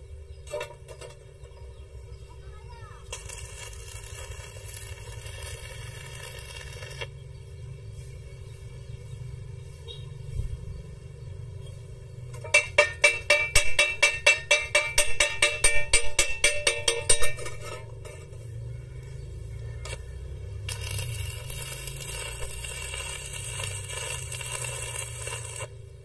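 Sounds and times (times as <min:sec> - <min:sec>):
welding arc crackling: 0:02.8 - 0:07.6, 0:19.8 - 0:26.0
hammer striking metal: 0:12.4 - 0:18.4.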